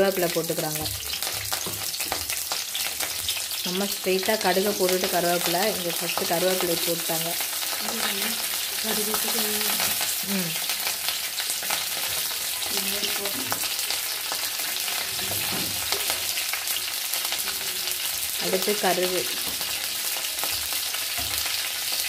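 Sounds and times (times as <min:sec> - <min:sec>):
leaves sizzling in hot oil: 0:00.0 - 0:22.0.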